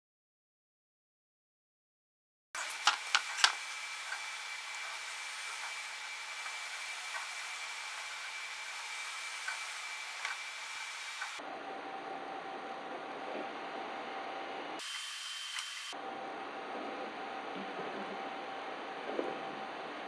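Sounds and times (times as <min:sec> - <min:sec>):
fan-like whirring hiss: 0:02.6 - 0:20.0
thin high whine: 0:02.6 - 0:20.0
low hum: 0:03.6 - 0:14.8, 0:16.0 - 0:20.0.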